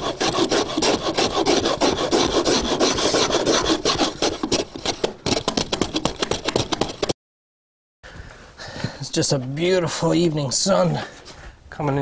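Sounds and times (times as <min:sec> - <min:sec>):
block plane shaving wood: 0:00.0 - 0:07.1.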